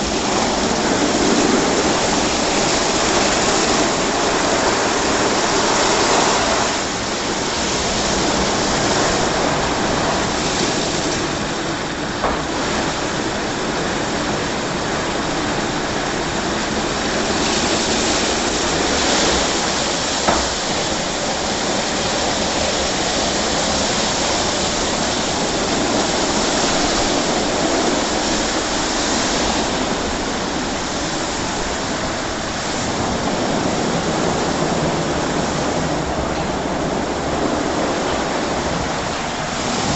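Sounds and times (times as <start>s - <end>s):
water spraying and splashing: 0.0s - 39.9s.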